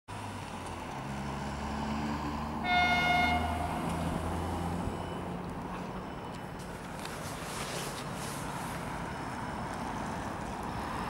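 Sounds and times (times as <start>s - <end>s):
diesel engines droning: 0.1s - 11.0s
high-pitched train horn: 2.6s - 4.0s.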